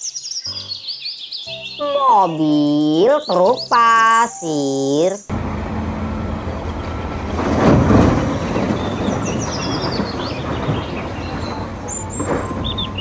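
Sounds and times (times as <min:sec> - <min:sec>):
birds chirping: 0:00.0 - 0:13.0
machine engines running: 0:05.3 - 0:13.0
earth falling into truck bed: 0:06.7 - 0:13.0.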